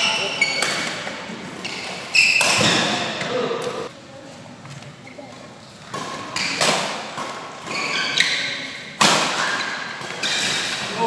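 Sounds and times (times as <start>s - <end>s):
shoes squeaking on court: 0.0s - 3.9s, 7.6s - 10.8s
rackets hitting shuttlecock: 5.9s - 11.0s.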